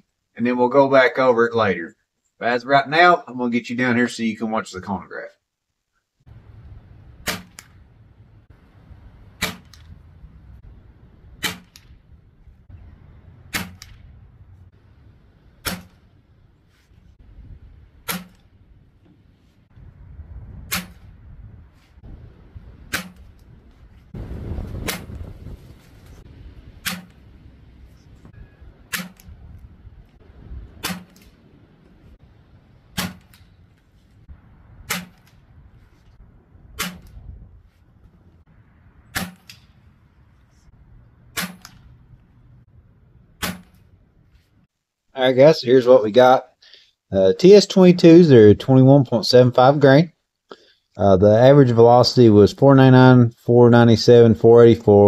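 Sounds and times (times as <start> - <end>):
air rifle shots: 7.2 - 7.8, 9.3 - 10.0, 11.4 - 12.0, 13.4 - 14.1, 15.6 - 16.2, 18.0 - 18.5, 20.6 - 21.2, 22.8 - 23.4, 24.7 - 25.4, 26.8 - 27.3, 28.7 - 29.4, 30.7 - 31.4, 32.9 - 33.6, 34.8 - 35.4, 36.8 - 37.2, 39.1 - 39.8, 41.3 - 42.0, 43.4 - 43.9
wind rumble on microphone: 17.0 - 43.0.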